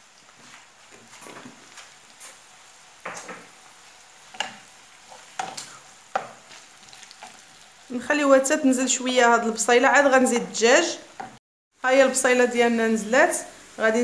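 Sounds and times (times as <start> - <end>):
onion sizzling in a pan: 0.0 - 14.0
wooden spatula scraping a pan: 4.2 - 7.4.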